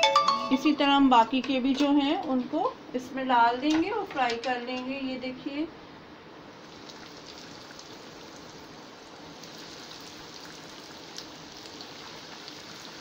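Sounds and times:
food deep-frying in oil: 6.5s - 13.0s
oil crackles: 9.3s - 13.0s.

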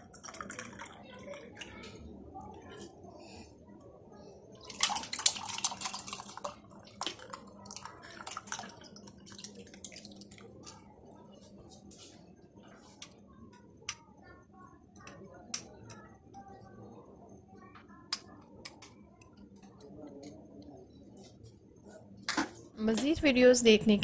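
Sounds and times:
liquid pouring into a glass: 0.0s - 1.9s, 4.6s - 10.8s
drips and small splashes: 0.0s - 2.0s, 4.6s - 11.4s.

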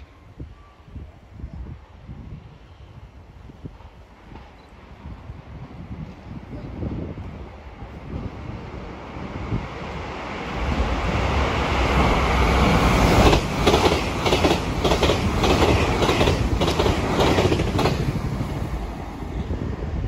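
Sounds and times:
train rushing past: 3.2s - 20.0s
train wheels clacking over rail joints: 13.1s - 18.1s.

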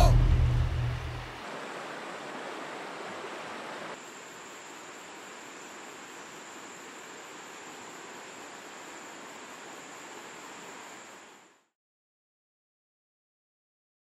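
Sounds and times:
river running over rocks: 0.0s - 11.3s.

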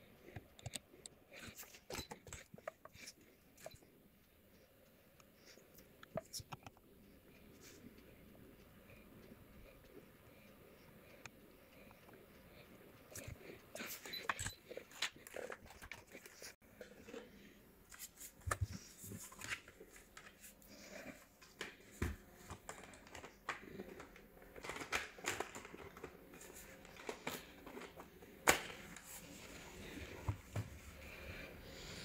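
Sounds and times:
hands handling laptop and tools: 21.2s - 30.9s.

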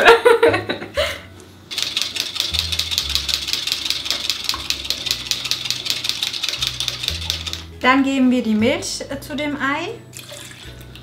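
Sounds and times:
whisk beating egg in cup: 1.8s - 7.7s.

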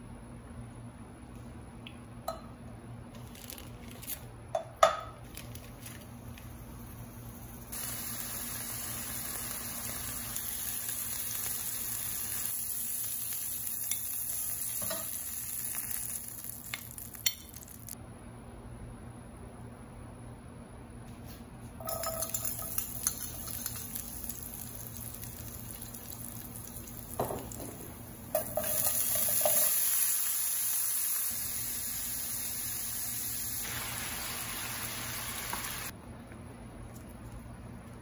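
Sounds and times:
loud hissing sizzle: 6.7s - 18.0s, 22.3s - 35.9s
garlic sizzling in hot oil: 7.2s - 18.0s, 21.8s - 35.9s.

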